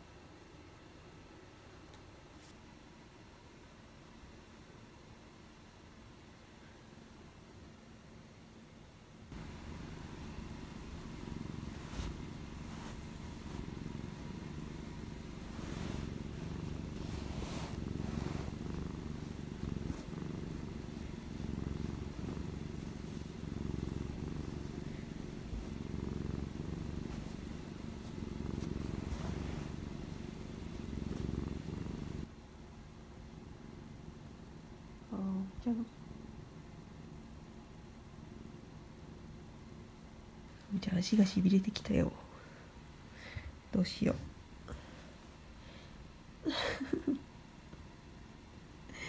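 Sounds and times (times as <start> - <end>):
faint rustles: 9.3 - 32.3
cat purring: 9.3 - 49.0.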